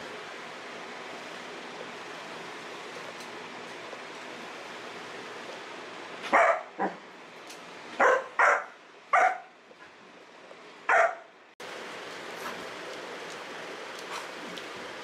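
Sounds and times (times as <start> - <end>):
puppy barking: 6.2 - 7.0, 8.0 - 9.5, 10.9 - 11.3.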